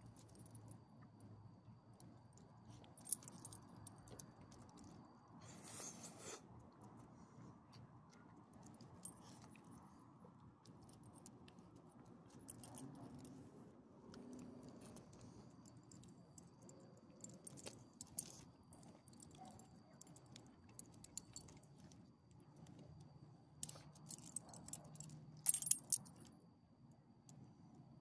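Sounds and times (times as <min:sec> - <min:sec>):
metal dog tags jingling: 0:23.6 - 0:26.2.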